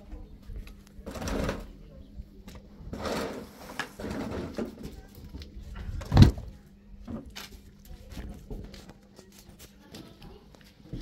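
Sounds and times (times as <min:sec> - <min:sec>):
heavy thump: 0:05.9 - 0:06.5.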